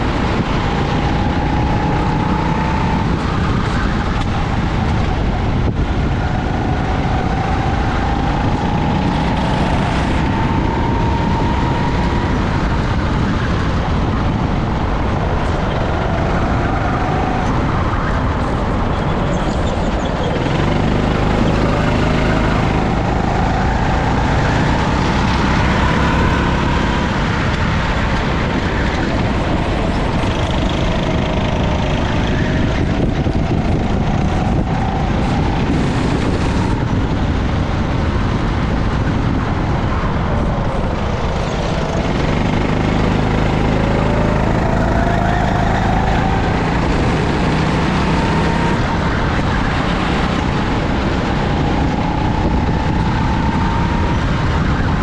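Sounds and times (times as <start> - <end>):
go-kart engine accelerating: 0.0 - 55.0
wind noise: 0.0 - 55.0.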